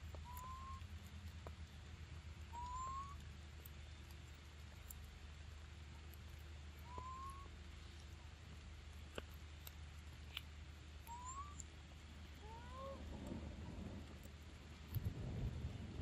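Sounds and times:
faint clicks: 0.0s - 16.0s
steady low hum: 0.0s - 16.0s
baby monkey squeaks: 0.2s - 0.9s, 2.5s - 3.2s, 6.9s - 7.5s, 11.1s - 11.6s.

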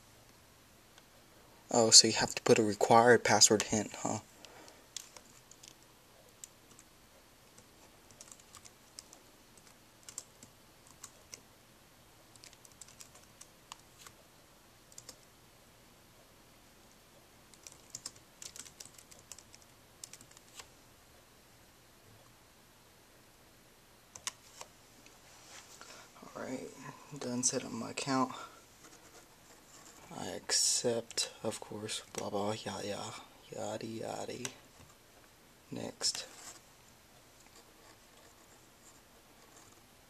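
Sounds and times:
laptop keyboard typing: 4.9s - 11.4s, 12.3s - 14.2s, 14.9s - 15.3s, 17.5s - 20.7s, 24.1s - 24.7s.

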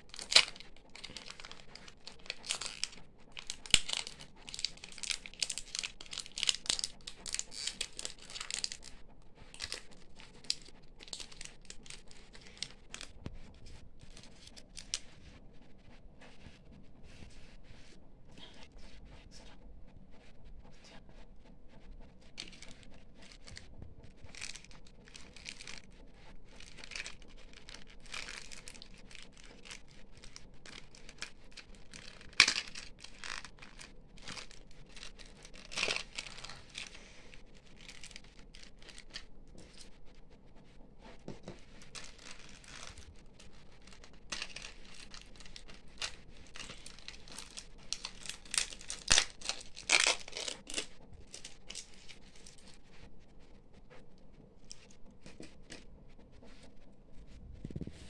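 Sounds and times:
plastic wrapper crinkling: 0.0s - 15.1s, 22.4s - 40.0s, 41.0s - 53.0s, 54.6s - 55.8s.

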